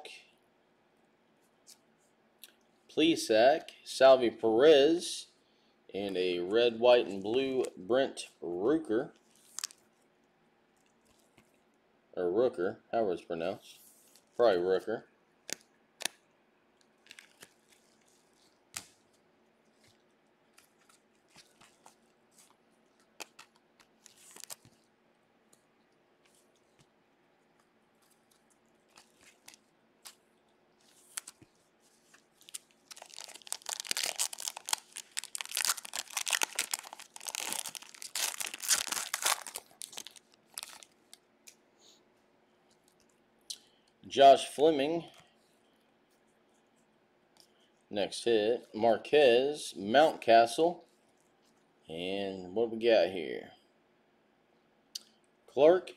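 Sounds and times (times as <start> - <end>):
cards being handled: 9.2 - 9.8, 15.4 - 16.2, 16.8 - 24.9, 25.5 - 41.6
card pack wrapper crinkling: 9.2 - 9.9, 15.4 - 16.2, 16.8 - 24.9, 27.5 - 41.6.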